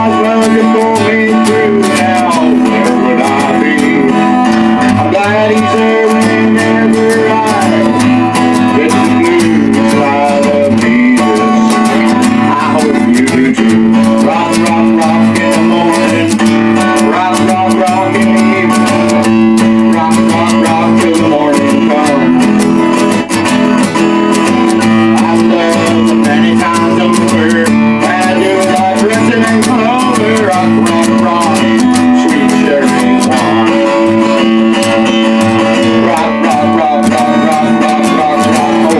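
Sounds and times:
guitar strumming chords: 0:00.0 - 0:38.9.

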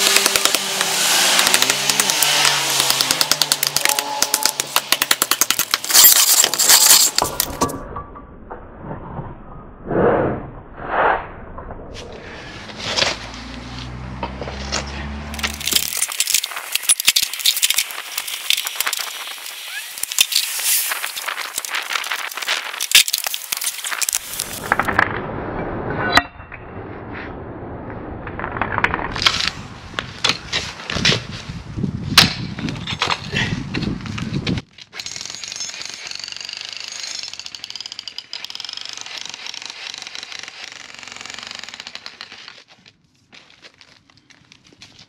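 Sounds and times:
bricks and tools clinking: 0:00.0 - 0:08.1, 0:15.4 - 0:25.0, 0:34.8 - 0:42.8
low hum: 0:07.4 - 0:17.1, 0:24.2 - 0:30.3.

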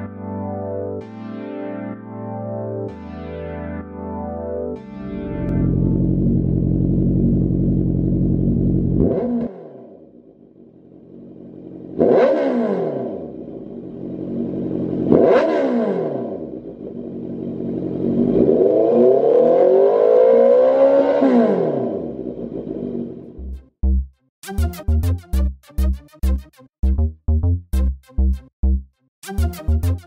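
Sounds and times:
motorcycle engine revving: 0:05.4 - 0:10.2, 0:11.0 - 0:23.6.

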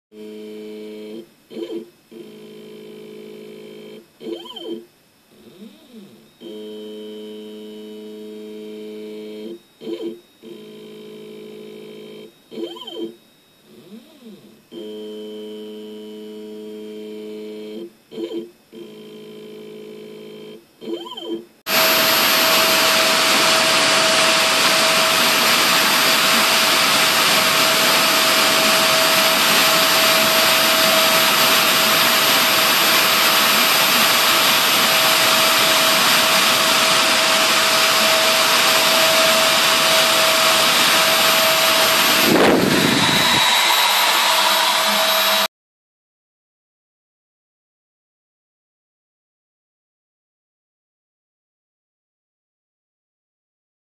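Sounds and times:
spindle motor whining: 0:00.2 - 0:45.5
stepper motors humming: 0:20.9 - 0:45.5.

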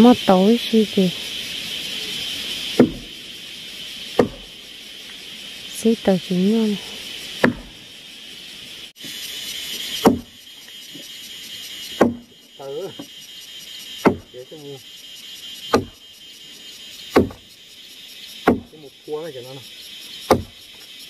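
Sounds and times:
insects buzzing: 0:00.0 - 0:21.0
chopping blows: 0:02.7 - 0:03.1, 0:04.2 - 0:04.5, 0:07.4 - 0:07.8, 0:10.0 - 0:10.3, 0:11.9 - 0:12.3, 0:14.0 - 0:14.3, 0:15.7 - 0:16.0, 0:17.1 - 0:17.4, 0:18.4 - 0:18.7, 0:20.3 - 0:20.6.

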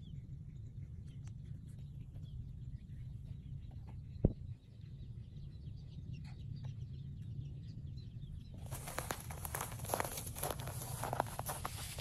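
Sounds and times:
faint bird chirps: 0:00.0 - 0:12.0
steady low rumble: 0:00.0 - 0:12.0
rustling hiss: 0:08.7 - 0:12.0.

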